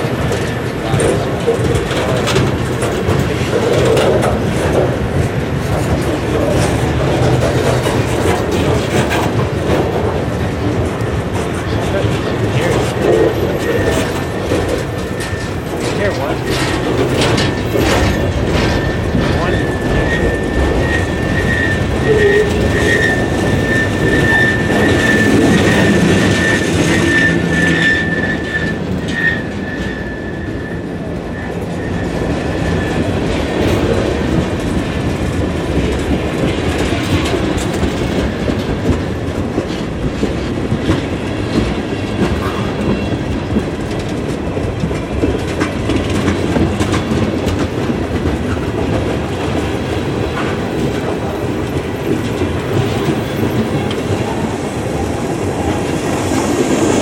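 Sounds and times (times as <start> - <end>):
freight car wheels rumbling: 0.0 - 57.0
high-pitched squeal: 12.6 - 33.0.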